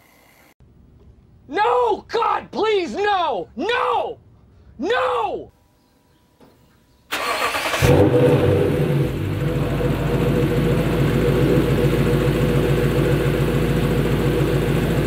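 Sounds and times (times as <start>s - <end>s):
car engine starter cranking: 7.1s - 9.0s
car engine idling: 7.3s - 15.0s.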